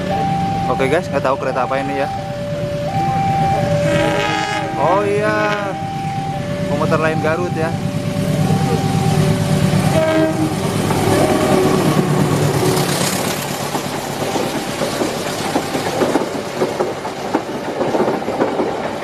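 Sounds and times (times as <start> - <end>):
diesel locomotive engine drone: 0.0 - 19.0
train wheels clicking over rail joints: 6.5 - 19.0.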